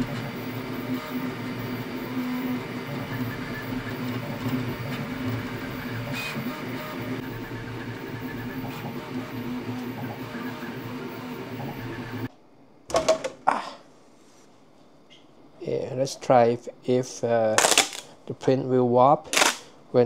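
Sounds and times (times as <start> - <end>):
printer motors and fans humming: 0.0 - 13.4.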